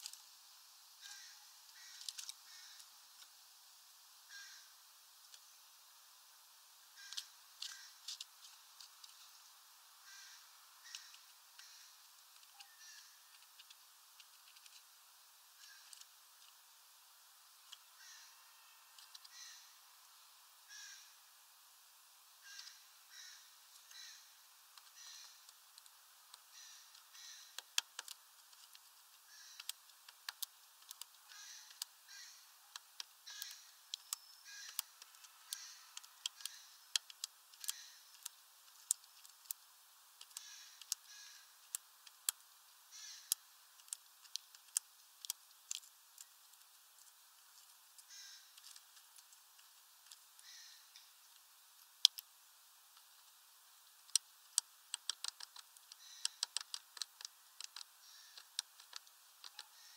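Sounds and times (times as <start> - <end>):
short bird calls: 1.0 - 2.9, 4.3 - 4.7, 10.0 - 13.3, 17.9 - 19.8, 20.7 - 21.2, 22.4 - 24.4, 26.5 - 27.6, 29.3 - 29.7, 31.3 - 32.6, 40.4 - 41.5, 42.9 - 43.4, 48.1 - 48.6, 50.4 - 51.0, 56.0 - 56.4, 58.0 - 58.5, 59.6 - 59.9
bird pecking on wooden perch: 24.8 - 39.6, 54.0 - 59.9.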